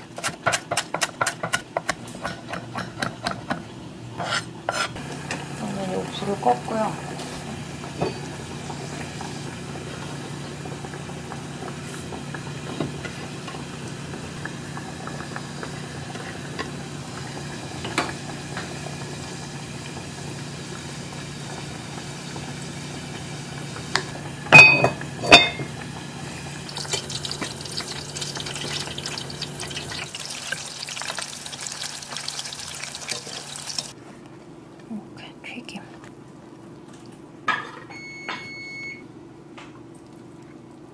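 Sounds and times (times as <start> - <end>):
cookware clanking: 24.6 - 25.7
water or frying hiss: 25.8 - 34.0.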